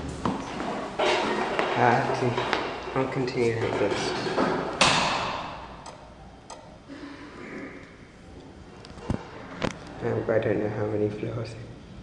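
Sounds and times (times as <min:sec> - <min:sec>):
loud ringing knock: 0:04.8 - 0:05.8.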